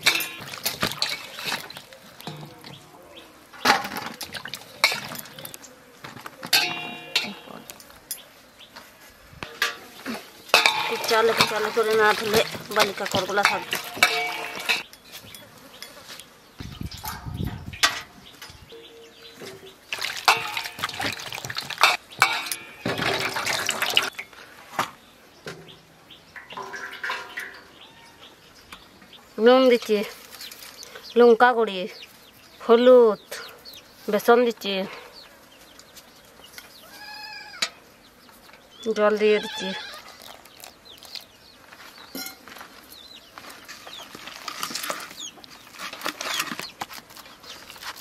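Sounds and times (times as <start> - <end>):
pieces clinking on steel plate: 0.0 - 2.8, 6.5 - 8.2, 10.5 - 16.0, 20.0 - 24.2
water sloshing in steel bowl: 0.0 - 3.0, 3.7 - 5.6, 10.5 - 14.8, 19.4 - 24.2, 26.4 - 27.6.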